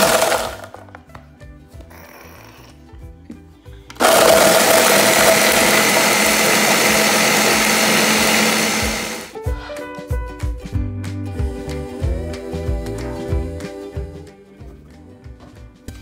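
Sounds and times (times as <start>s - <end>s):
blender grinding cereal: 0.0s - 0.8s, 4.0s - 9.4s.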